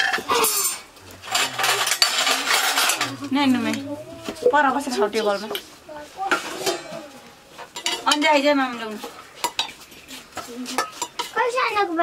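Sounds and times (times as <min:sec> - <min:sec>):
metal ladle scraping a pot: 0:00.1 - 0:05.7.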